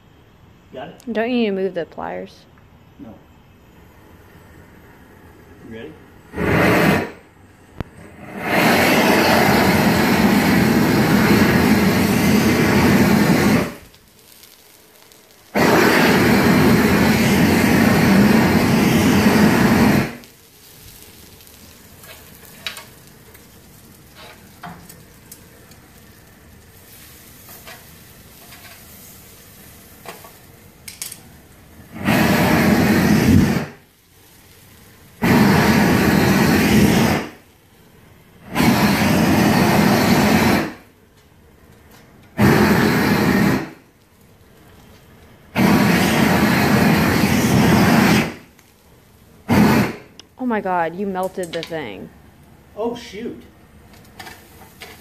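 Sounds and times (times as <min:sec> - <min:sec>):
propane torch roaring: 0:00.0 - 0:55.0
fat crackling as it sears: 0:06.2 - 0:55.0.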